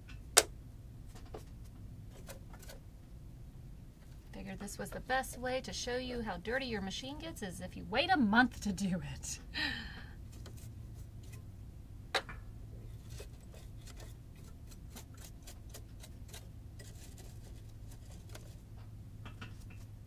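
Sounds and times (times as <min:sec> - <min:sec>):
steady low hum: 0:00.0 - 0:20.0
brush scraping and clicking: 0:01.1 - 0:02.8, 0:10.3 - 0:11.5, 0:12.8 - 0:20.0.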